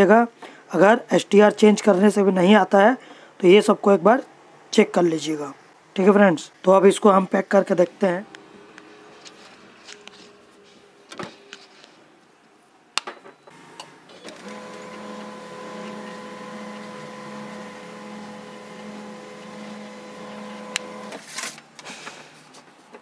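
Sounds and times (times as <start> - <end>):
printer mechanism humming: 13.5 - 21.3
printer clicks: 13.8 - 21.2.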